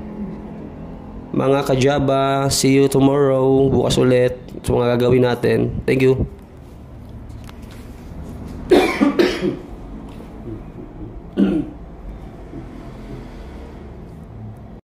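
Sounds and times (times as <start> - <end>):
steady low hum: 0.0 - 14.8
person coughing: 8.7 - 9.7, 11.3 - 11.8.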